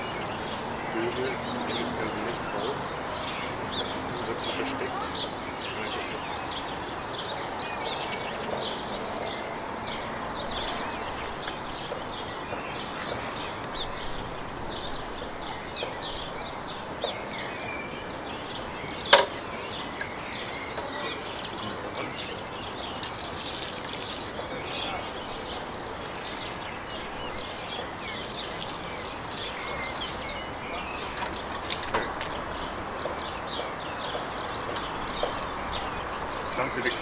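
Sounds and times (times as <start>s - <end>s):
small birds chirping and singing: 0.0s - 37.0s
steady outdoor hiss: 0.0s - 37.0s
sharp knock: 19.1s - 19.4s.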